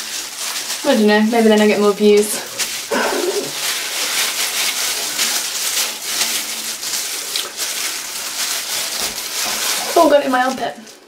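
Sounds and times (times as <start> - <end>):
gloved hands rubbing wet hair: 0.0 - 11.0.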